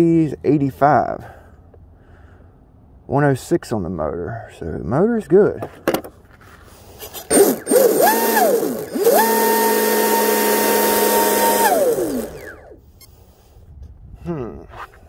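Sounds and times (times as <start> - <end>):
electric motor whine: 7.3 - 12.8.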